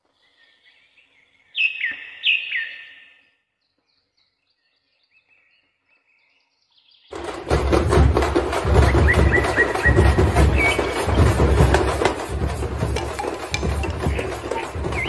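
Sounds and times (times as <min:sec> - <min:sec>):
faint bird chirps: 0:00.0 - 0:07.1.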